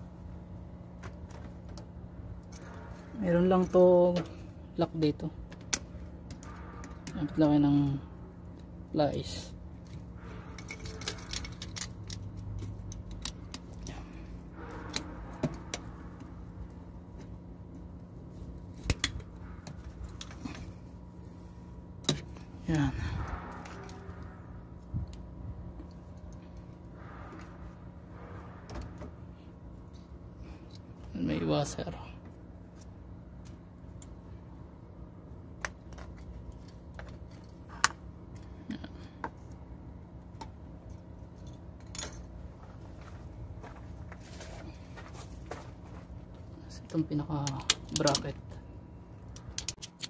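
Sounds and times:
steady low hum: 0.0 - 50.0
pliers clicking and scraping metal: 9.8 - 16.2, 46.9 - 48.4, 49.2 - 50.0
small metallic clicks: 10.5 - 14.0, 49.2 - 50.0.

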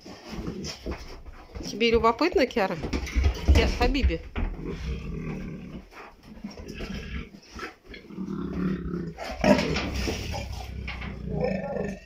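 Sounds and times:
young lions growling: 4.5 - 12.0.

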